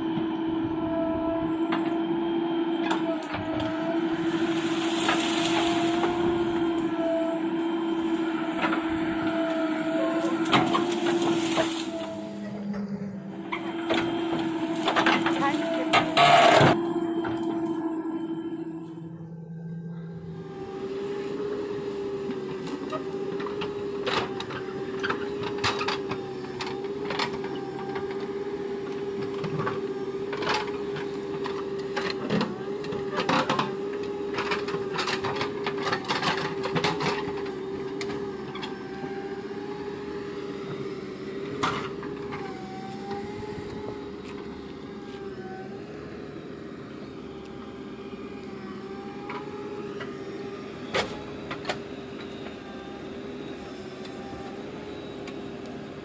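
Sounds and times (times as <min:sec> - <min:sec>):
diesel engine running under load: 0:00.0 - 0:56.0
wavering higher tone: 0:08.8 - 0:21.9.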